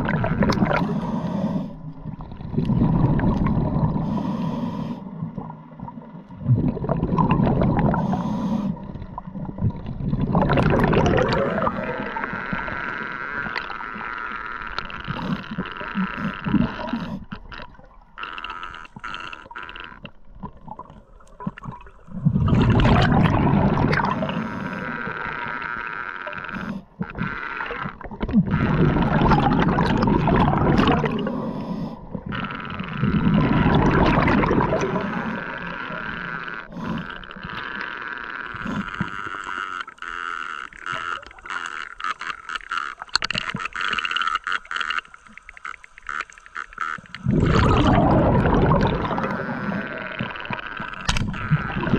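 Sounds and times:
bubbling bursts: 0:00.0 - 0:00.9, 0:05.4 - 0:08.2, 0:08.8 - 0:14.1, 0:20.4 - 0:25.4, 0:27.2 - 0:31.3, 0:32.2 - 0:36.2, 0:40.7 - 0:51.9
underwater crackle of clicks: 0:00.0 - 0:51.9
underwater hum: 0:00.0 - 0:51.9.

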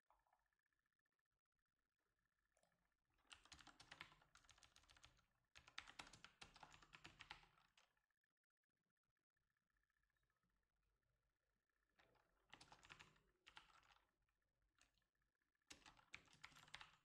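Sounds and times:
faint keyboard typing: 0:02.6 - 0:08.0, 0:12.0 - 0:14.2, 0:14.8 - 0:17.0.

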